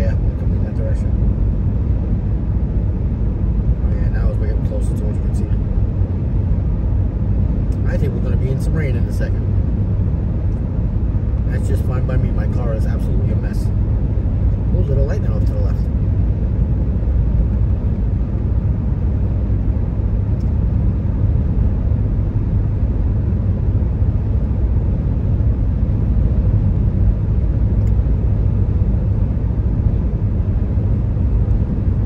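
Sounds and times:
car engine cruising: 0.0s - 32.0s
road noise: 0.0s - 32.0s.

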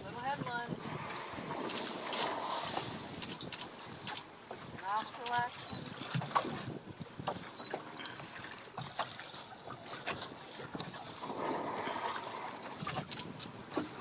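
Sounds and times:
wind on microphone: 0.0s - 7.7s
water splashing against boat hull: 0.0s - 14.0s
rushing swell of water: 0.7s - 4.3s, 7.6s - 13.0s.

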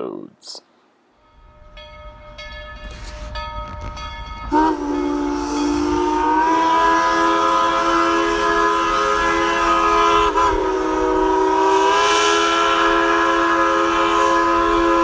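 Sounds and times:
steam locomotive whistle: 4.4s - 15.0s.

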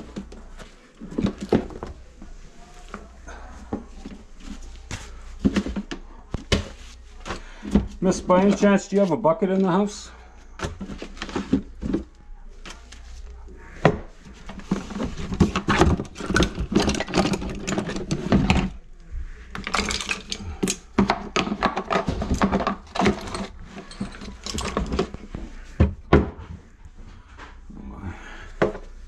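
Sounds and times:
plastic bucket being moved: 19.5s - 26.4s.

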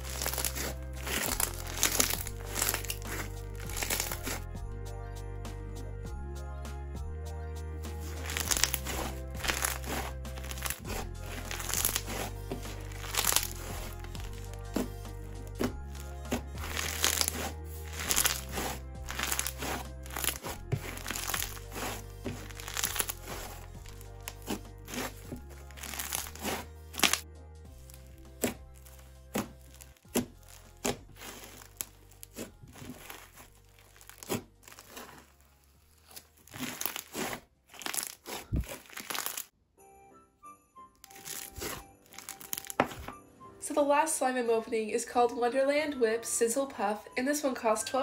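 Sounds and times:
crunchy slime crackling: 0.0s - 4.4s, 8.0s - 27.2s, 27.8s - 39.5s, 41.0s - 43.1s
background music: 0.0s - 48.0s.

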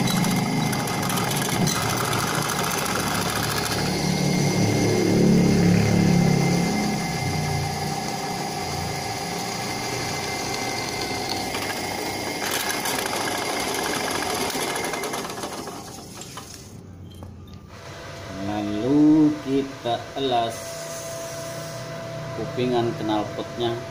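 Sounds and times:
drill press cutting steel: 0.0s - 4.8s, 6.3s - 16.8s.

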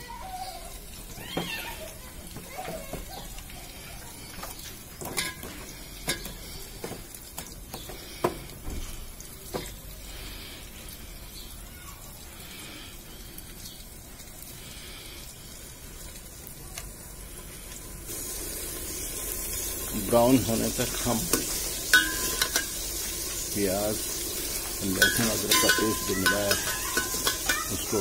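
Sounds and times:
onion frying in oil: 0.0s - 28.0s
metal ladle scraping a pot: 21.0s - 23.4s, 24.2s - 28.0s.

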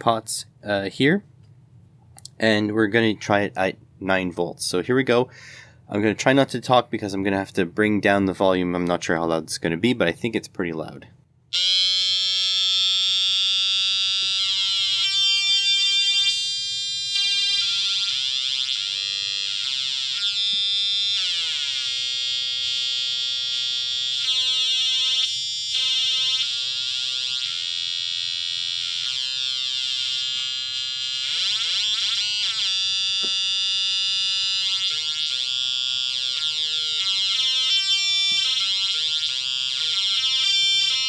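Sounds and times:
square-wave synth buzzing: 11.6s - 41.0s.

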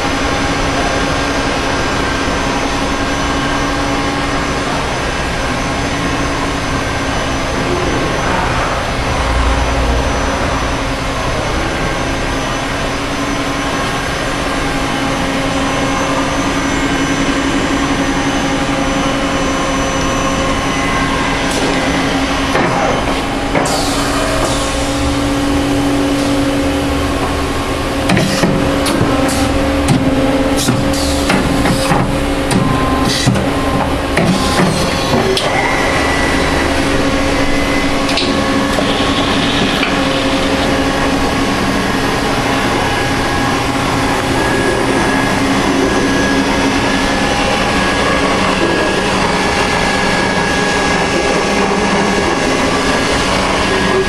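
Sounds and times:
machining center humming: 0.0s - 54.0s.

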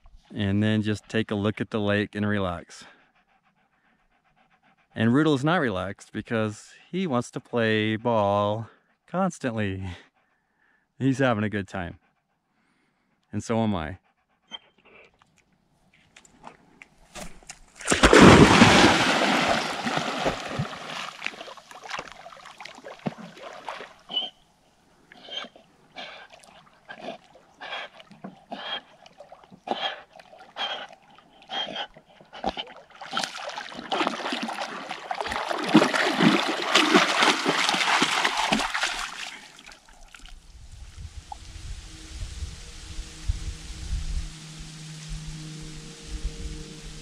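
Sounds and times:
dog splashing in water: 17.7s - 24.2s, 32.4s - 40.3s.

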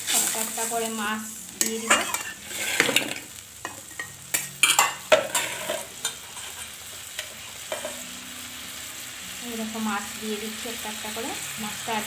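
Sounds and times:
curry sizzling in pan: 0.0s - 12.0s
metal spatula scraping metal pan: 1.6s - 3.3s, 3.9s - 8.0s.

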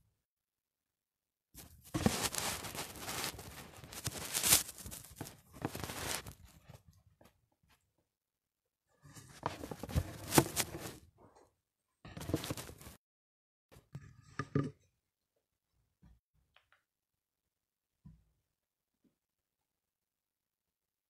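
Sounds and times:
phone handling rustling and scraping: 1.8s - 6.4s, 9.2s - 11.0s, 12.2s - 12.9s.

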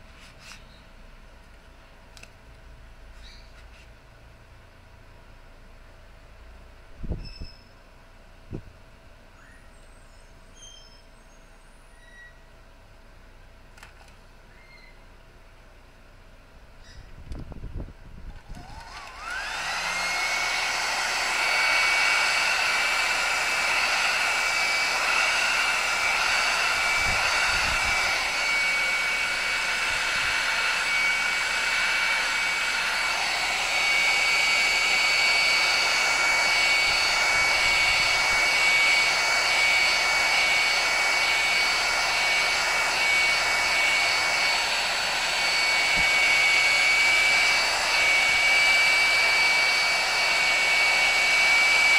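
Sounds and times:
heat gun blowing with whine: 16.8s - 51.9s.

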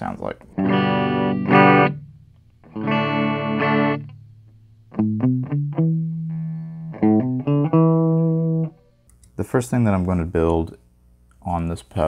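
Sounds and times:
electric guitar chord strummed: 0.5s - 4.2s, 5.0s - 8.7s
electric guitar picked notes: 0.5s - 9.0s.

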